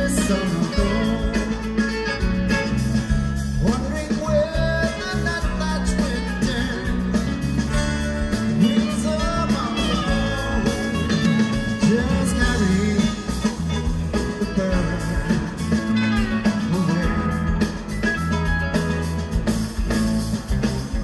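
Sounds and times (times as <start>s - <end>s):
person singing: 0.0s - 2.3s, 3.6s - 7.3s, 8.3s - 17.8s
rock song with guitar: 0.0s - 21.0s.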